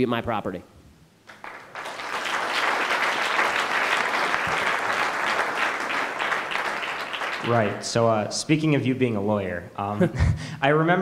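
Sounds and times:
audience applauding: 1.3 - 8.1.

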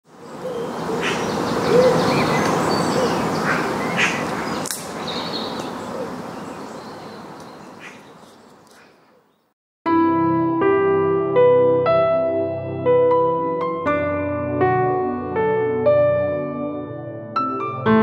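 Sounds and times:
birds chirping: 0.1 - 9.5
sharp click: 4.6 - 4.9.

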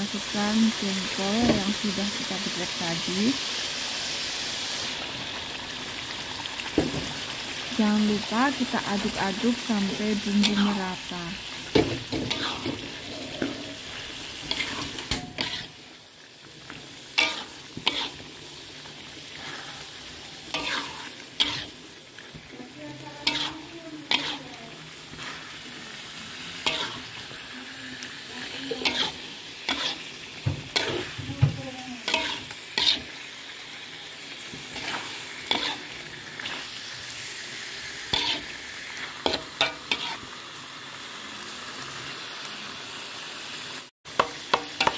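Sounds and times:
spice paste sizzling in a wok: 0.0 - 44.9
spatula scraping a wok: 8.3 - 33.3, 34.3 - 37.2, 37.8 - 40.4.

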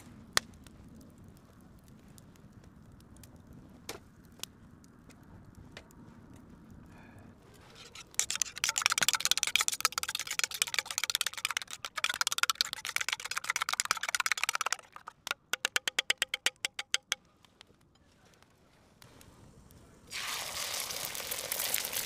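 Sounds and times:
hot oil sizzling and crackling: 7.7 - 16.9, 20.1 - 22.0
sharp pops: 7.8 - 17.7.

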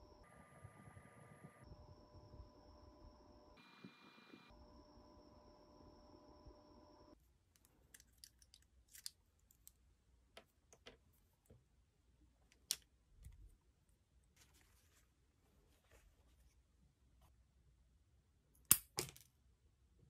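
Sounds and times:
paper rustle: 14.3 - 16.6.

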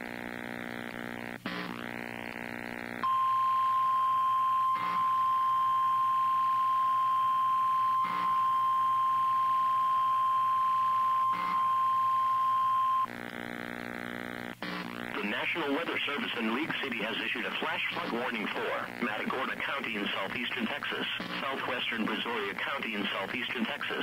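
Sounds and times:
high warning alarm beep: 3.0 - 13.1.

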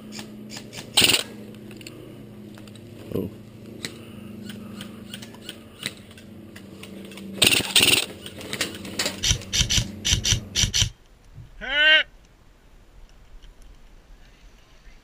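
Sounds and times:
running footsteps on twigs and leaves: 8.1 - 11.0.

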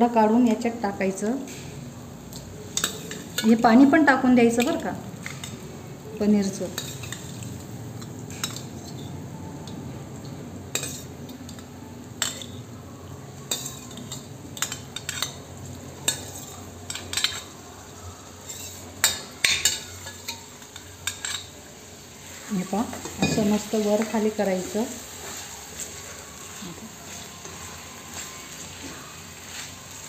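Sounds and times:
food sizzling in a frying pan: 0.0 - 30.0
spoon scraping a pan: 2.3 - 3.6, 6.6 - 7.6, 10.7 - 11.6, 13.5 - 15.4, 16.0 - 17.6, 18.4 - 30.0.

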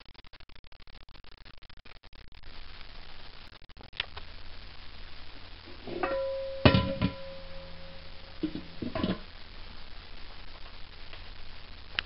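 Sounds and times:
lid clinking: 5.7 - 9.3
metal lid clanking and ringing: 5.7 - 9.3.

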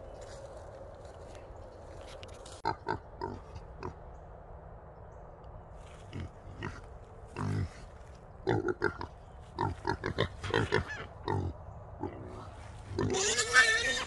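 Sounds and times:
hogs grunting: 6.0 - 14.0
hog squealing: 13.0 - 14.0.

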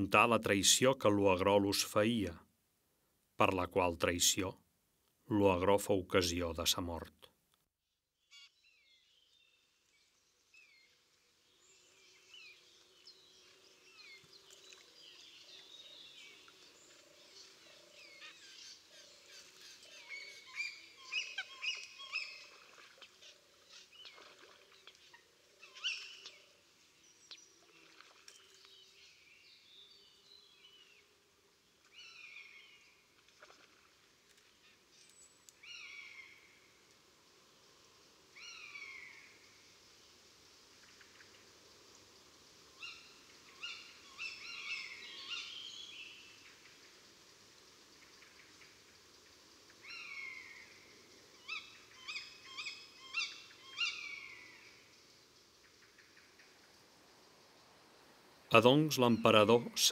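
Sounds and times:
birds chirping: 8.2 - 31.1, 42.7 - 46.8, 58.5 - 59.9
distant bird calls: 8.2 - 36.8, 37.6 - 39.9, 40.6 - 59.9.

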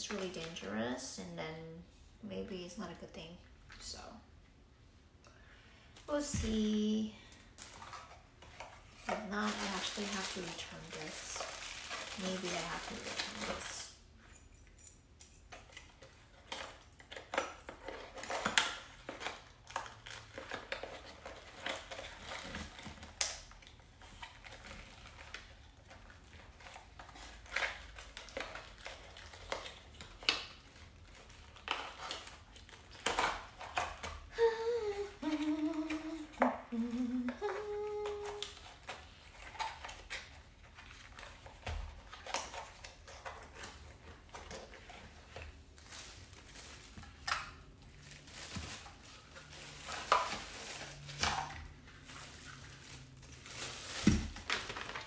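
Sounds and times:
person humming: 34.3 - 38.5.

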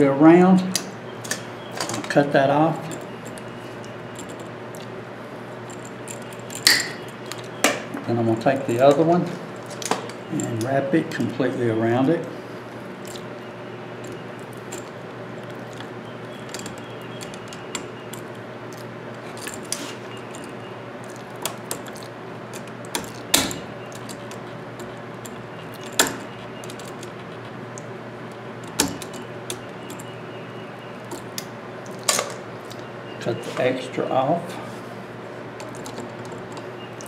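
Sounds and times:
pliers and wire clicking: 14.0 - 30.2.

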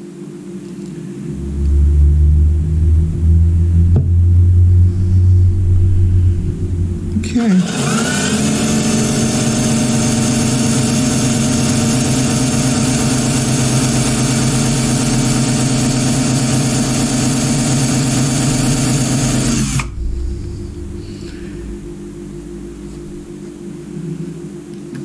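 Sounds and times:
drill bit cutting: 7.2 - 19.9
cordless drill motor whine: 7.2 - 20.0.

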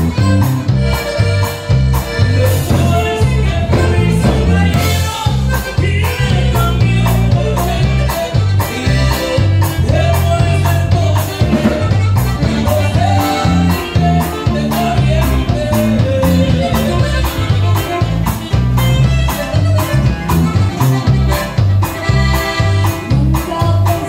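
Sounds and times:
drum kit beat: 0.0 - 24.0
electric bass: 0.0 - 24.0
electric guitar: 0.0 - 24.0
saxophone melody: 11.3 - 23.0.

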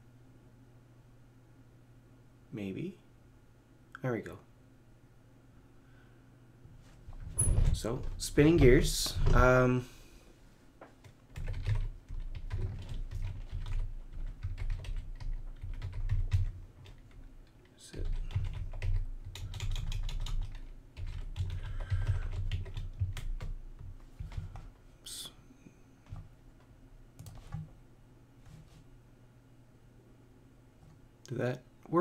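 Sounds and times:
computer keyboard typing: 11.0 - 24.7, 27.2 - 27.7.

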